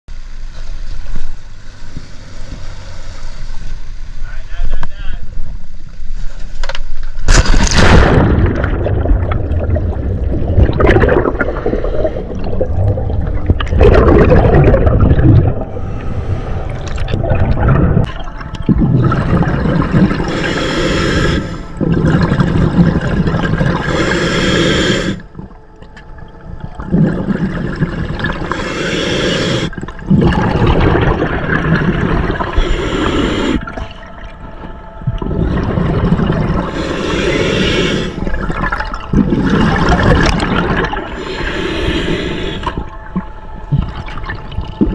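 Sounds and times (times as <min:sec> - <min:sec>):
underwater water noise: 0:05.3 - 0:44.9
exhaled bubbles from regulator: 0:07.8 - 0:25.6, 0:26.6 - 0:34.3, 0:35.1 - 0:44.9
diver breathing: 0:15.4 - 0:18.0, 0:19.8 - 0:22.8, 0:23.6 - 0:25.4, 0:27.2 - 0:31.2, 0:31.8 - 0:34.2, 0:35.2 - 0:38.6, 0:39.2 - 0:43.0.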